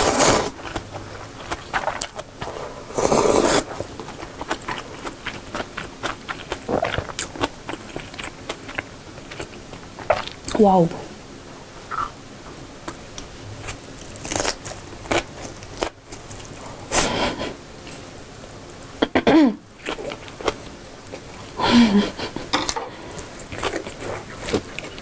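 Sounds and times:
close chewing: 0.1s - 10.6s, 22.2s - 25.0s.

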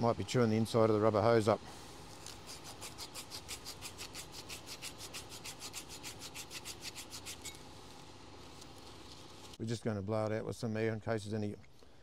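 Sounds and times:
sandpaper rubbing on metal pipe: 2.2s - 7.6s.

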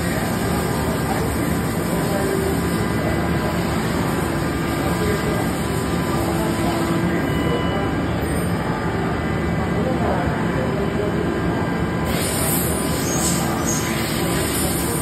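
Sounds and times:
coolant spraying: 0.0s - 7.1s, 12.1s - 15.0s
machining center running: 0.0s - 15.0s.

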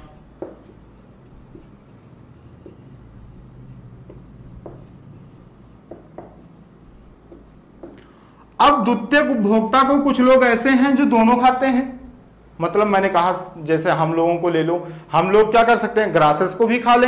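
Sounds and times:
marker writing on whiteboard: 0.0s - 8.1s
low steady hum: 0.0s - 10.4s.

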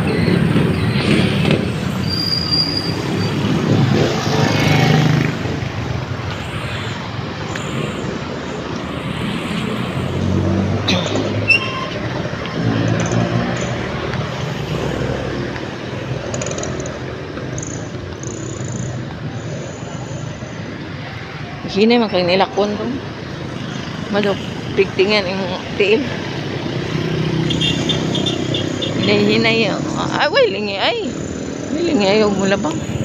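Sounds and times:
motorcycles and cars passing: 0.0s - 33.0s
brief high squeal: 2.0s - 3.0s, 11.4s - 12.0s.

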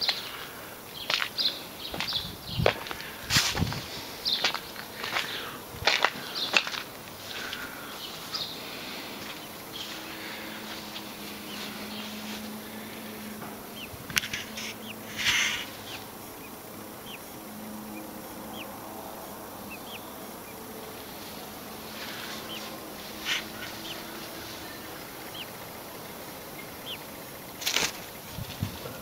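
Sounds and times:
brief rustles: 27.6s - 28.7s.

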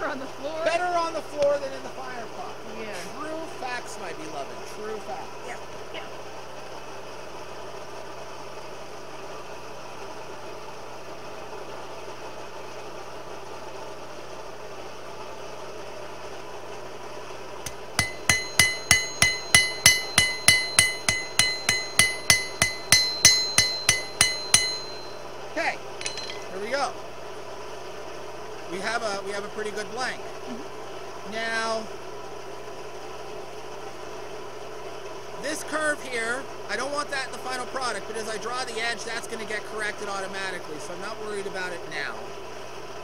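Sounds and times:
steady hum: 17.2s - 27.5s
hammer ringing on knife blade: 17.7s - 25.3s, 26.0s - 26.6s.

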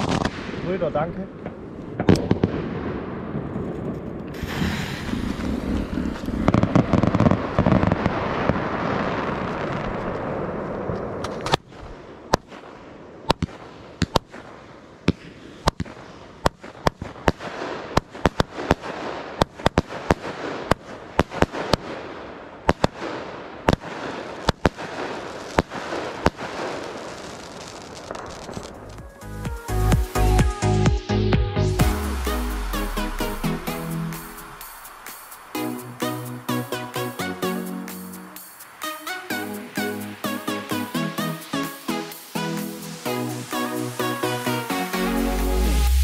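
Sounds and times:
firework shots and cracking bursts: 0.0s - 30.7s, 31.8s - 46.0s
firework rushing hiss: 4.3s - 11.8s, 22.7s - 29.4s, 32.0s - 36.6s, 37.2s - 46.0s.

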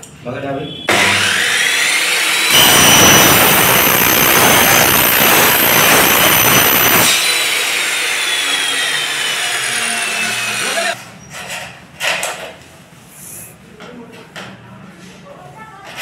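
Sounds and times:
miter saw motor whining: 0.9s - 11.0s
saw blade screeching through metal: 0.9s - 11.0s.

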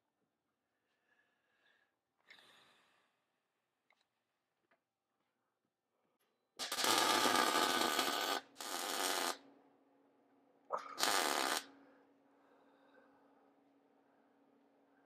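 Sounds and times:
welding arc crackling: 6.6s - 9.4s, 10.8s - 11.7s.

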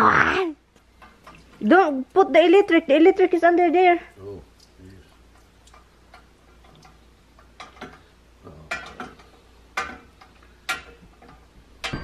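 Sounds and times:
metallic clicks and knocks: 5.7s - 12.0s.

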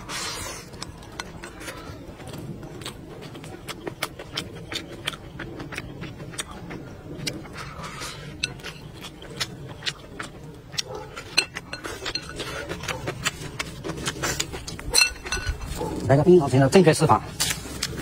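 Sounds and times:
slurping sauce: 0.0s - 2.0s
chewing and lip smacks: 0.0s - 16.1s.

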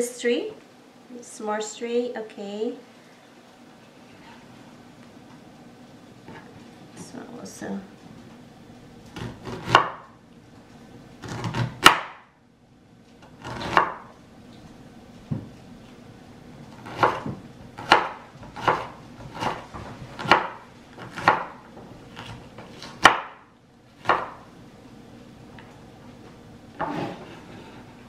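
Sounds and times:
cleaver chopping on cutting board: 11.2s - 12.2s, 13.4s - 14.0s, 16.8s - 19.6s, 20.2s - 21.6s, 24.0s - 24.4s.

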